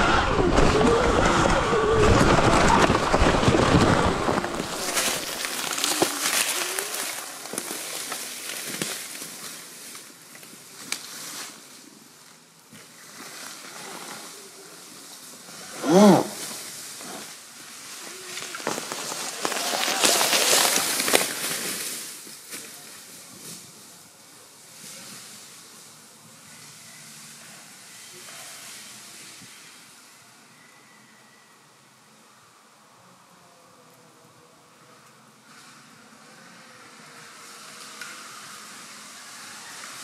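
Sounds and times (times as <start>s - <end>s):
wind on microphone: 0.0s - 5.4s
bike rattling over rough ground: 0.0s - 15.5s, 16.6s - 23.8s
person calling out: 15.8s - 16.4s.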